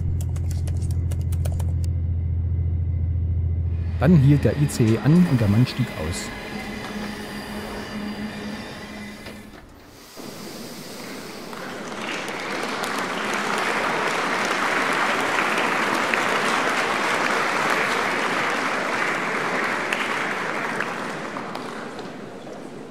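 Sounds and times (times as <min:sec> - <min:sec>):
audience applauding: 0:04.0 - 0:22.9.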